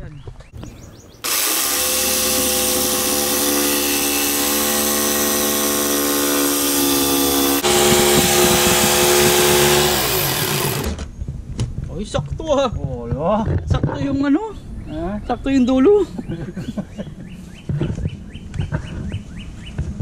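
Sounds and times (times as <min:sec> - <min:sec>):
circular saw cutting plywood: 0:01.2 - 0:11.1.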